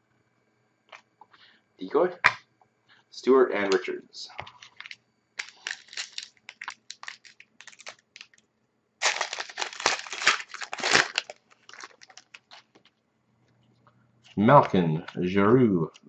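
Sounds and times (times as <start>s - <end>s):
card pack wrapper crinkling: 4.5s - 8.4s, 9.0s - 12.9s.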